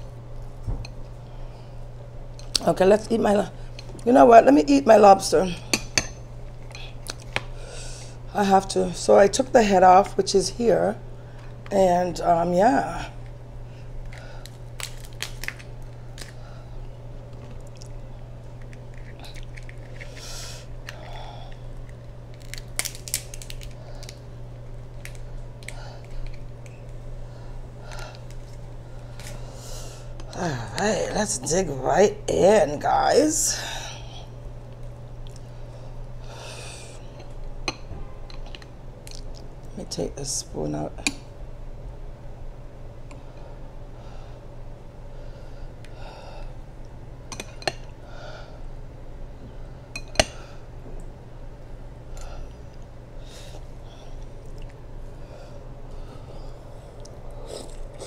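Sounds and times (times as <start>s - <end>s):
steady low hum: 0.0s - 58.0s
lobster shell cracking: 14.0s - 16.4s, 18.5s - 26.8s.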